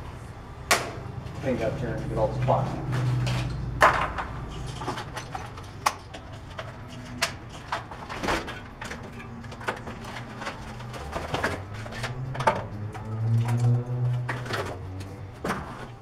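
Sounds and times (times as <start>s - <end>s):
packaging rustling and scraping: 4.4s - 12.3s.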